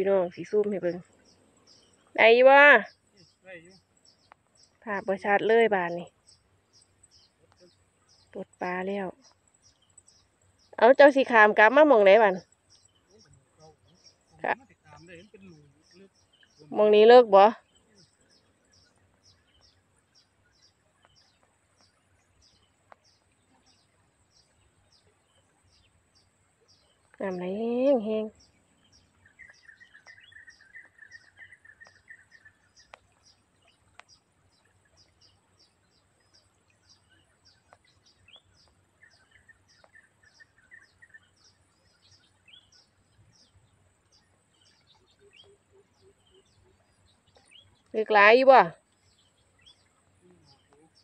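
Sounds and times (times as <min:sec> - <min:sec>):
faint outdoor ambience: 0:00.0 - 0:51.0
soft bird twittering: 0:00.0 - 0:51.0
faint click: 0:33.9 - 0:34.2.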